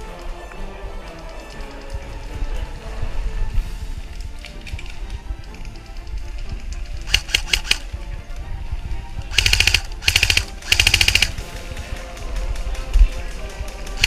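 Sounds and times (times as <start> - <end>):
background music: 0.0 - 14.0
airsoft gun shots: 9.3 - 11.4.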